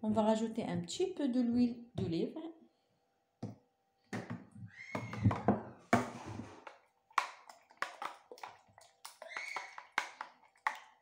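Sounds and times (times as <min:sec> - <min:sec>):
spoon stirring thick mixture: 0:05.0 - 0:11.0.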